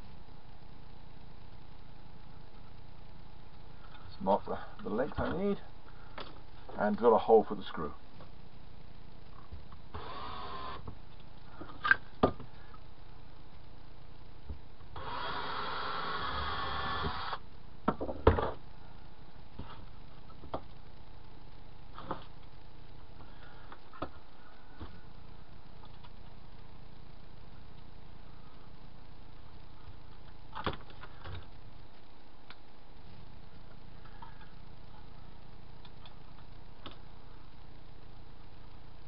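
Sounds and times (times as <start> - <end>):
cordless drill whining: 9.9 - 10.8, 15.0 - 17.4.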